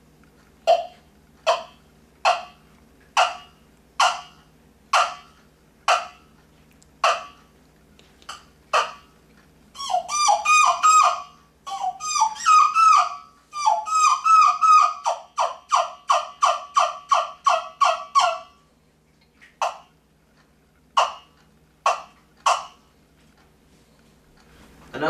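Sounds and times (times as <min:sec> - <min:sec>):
turkey hen yelps: 0:00.7 - 0:02.6, 0:03.2 - 0:06.2, 0:07.0 - 0:07.4, 0:08.3 - 0:09.1, 0:09.8 - 0:18.6, 0:19.5 - 0:19.9, 0:21.0 - 0:22.8
turkey call clucks: 0:00.7 - 0:06.3, 0:07.0 - 0:07.5, 0:08.2 - 0:09.1, 0:09.8 - 0:18.6, 0:19.4 - 0:20.0, 0:20.9 - 0:22.9.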